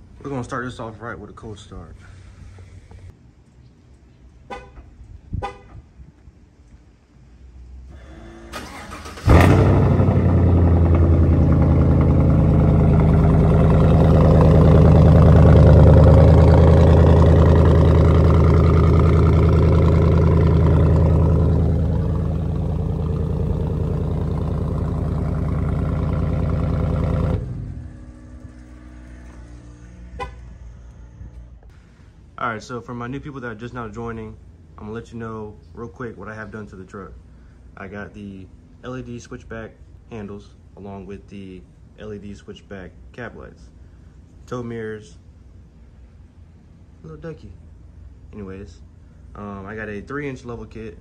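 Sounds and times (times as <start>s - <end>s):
truck engine cranking and idling: 7.9s - 34.8s.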